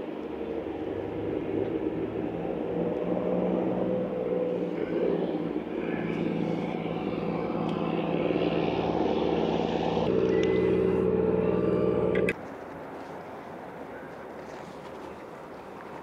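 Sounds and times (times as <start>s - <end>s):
outboard motor running: 0.8s - 12.4s.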